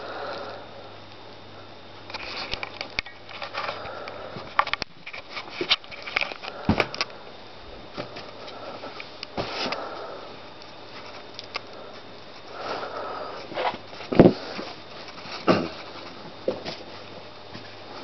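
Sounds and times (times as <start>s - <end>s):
foot stomping on balloons: 14.1s - 14.7s.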